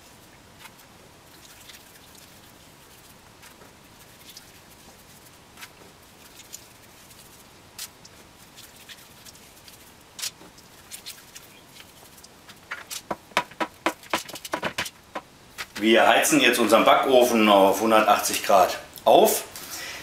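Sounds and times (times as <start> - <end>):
hands tapping cookie dough: 12.8 - 15.8.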